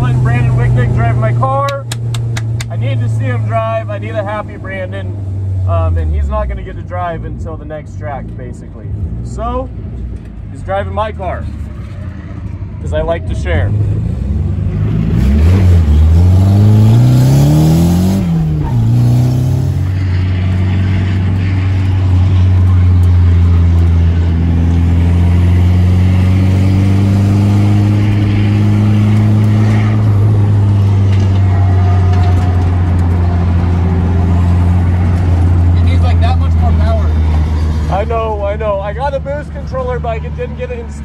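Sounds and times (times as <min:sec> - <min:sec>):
car engine revving: 0:00.0 - 0:41.0.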